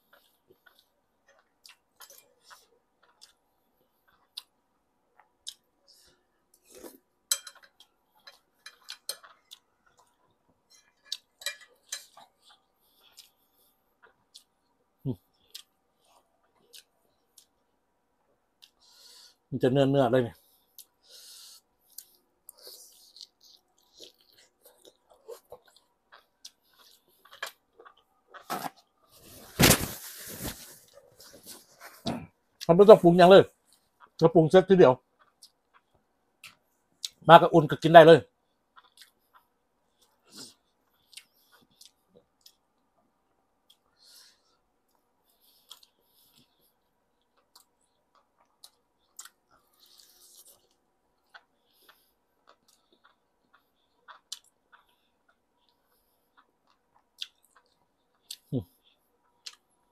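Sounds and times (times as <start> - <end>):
chewing: 0.0 - 17.6, 21.8 - 29.2, 35.1 - 37.2, 38.4 - 59.9
cutlery clinking on a plate: 7.3 - 9.2, 10.7 - 12.2.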